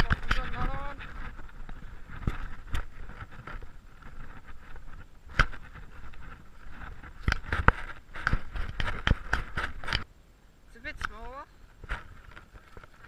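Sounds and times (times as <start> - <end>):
footsteps crunching on shells: 0.0 - 10.0.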